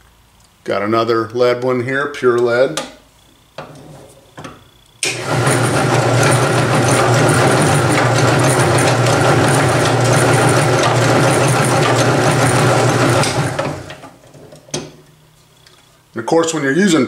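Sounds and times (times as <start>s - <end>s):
drill press running: 5.0s - 14.7s.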